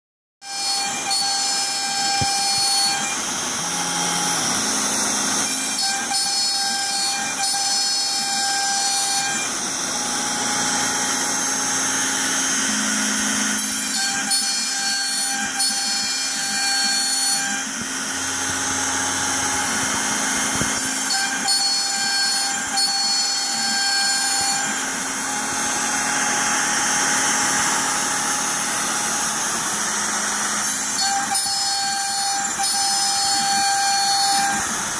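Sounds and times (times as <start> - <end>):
machine cutting tones: 0.4 - 34.9
router spindle whine: 0.4 - 34.9.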